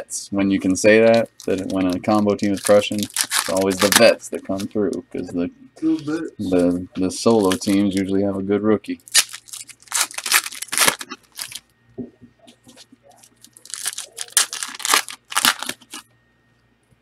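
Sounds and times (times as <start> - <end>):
wrappers tearing and crinkling: 1.1 - 4.7, 7.2 - 8.1, 9.0 - 11.6, 13.1 - 16.1.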